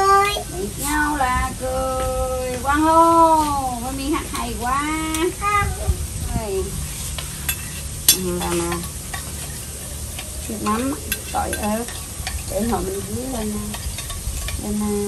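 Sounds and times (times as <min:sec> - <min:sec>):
batter-coated fish deep-frying in oil: 0:04.0 - 0:15.0.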